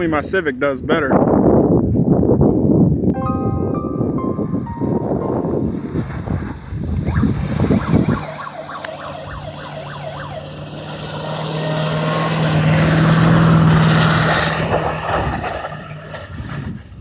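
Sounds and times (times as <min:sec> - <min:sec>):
truck engine at high revs: 0:05.7 - 0:17.0.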